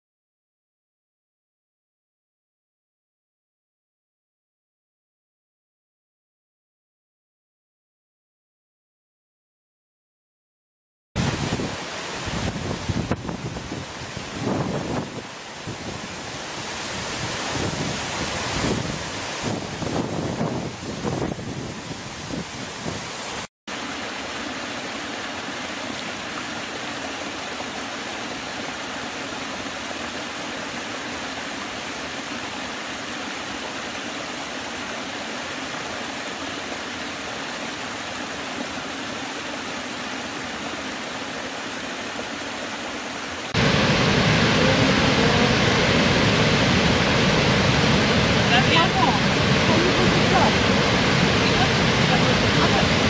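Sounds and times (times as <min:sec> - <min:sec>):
large waterfall rushing: 0:11.2 - 0:53.0
small cascade rushing: 0:21.7 - 0:53.0.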